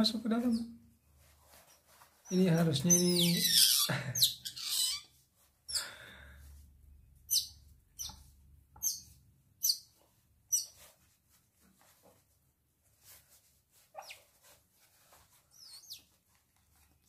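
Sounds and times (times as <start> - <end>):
baby otter squeaking: 2.8 - 5.1, 7.3 - 8.2, 8.8 - 9.9, 10.5 - 10.8, 13.9 - 14.3, 15.5 - 16.1.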